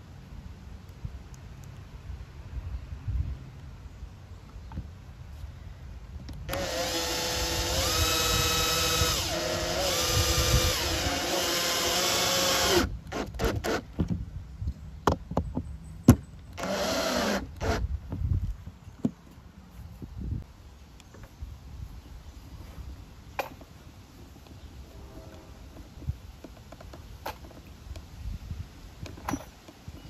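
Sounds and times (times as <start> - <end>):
cordless drill motor whining: 6.5 - 13.8, 16.6 - 17.9.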